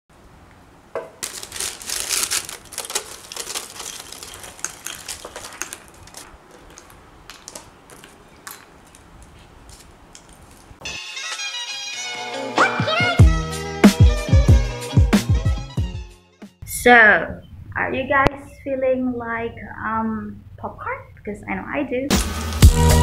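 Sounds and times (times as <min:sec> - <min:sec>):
popcorn pouring rattle: 0:01.2 - 0:08.6
paper rustle: 0:01.2 - 0:10.9.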